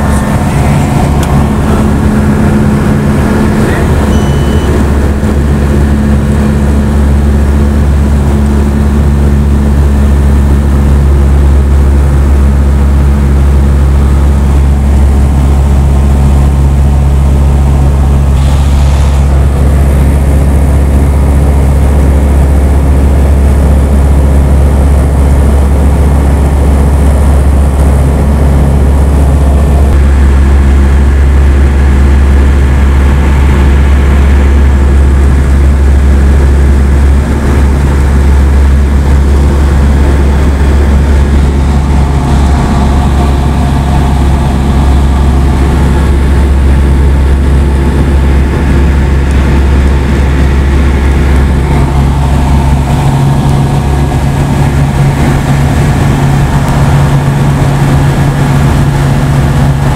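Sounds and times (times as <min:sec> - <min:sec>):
light aircraft engine drone: 0:00.0 - 0:59.9.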